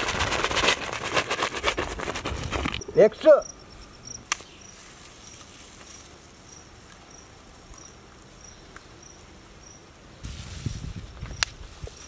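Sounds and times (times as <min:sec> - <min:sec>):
cricket chirping: 0:02.8 - 0:10.1.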